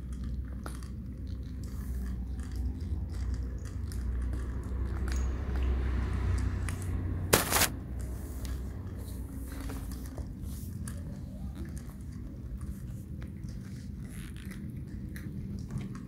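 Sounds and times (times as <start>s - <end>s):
cats crunching dry kibble: 0.0s - 4.8s, 7.3s - 7.7s, 9.5s - 16.0s.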